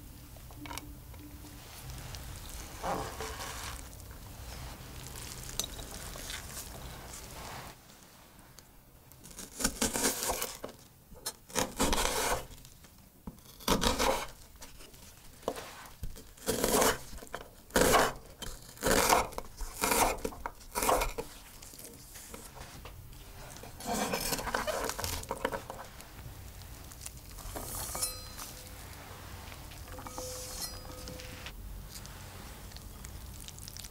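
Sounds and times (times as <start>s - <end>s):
knife slicing onion on board: 11.5s - 12.5s, 13.6s - 14.3s, 16.4s - 21.3s.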